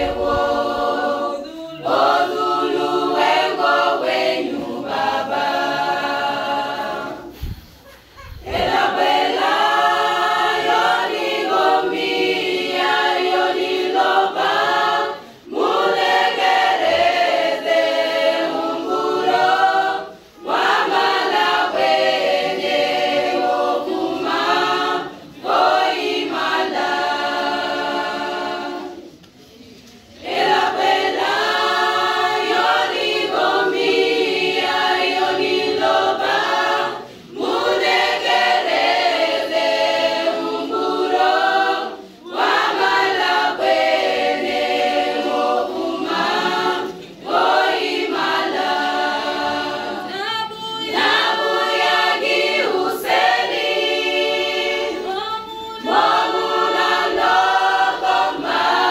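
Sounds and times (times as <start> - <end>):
women's choir singing a cappella: 0.0 - 58.9.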